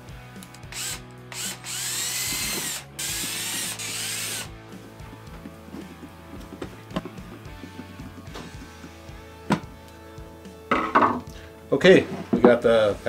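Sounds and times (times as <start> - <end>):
cordless drill driving screws: 0.4 - 4.6.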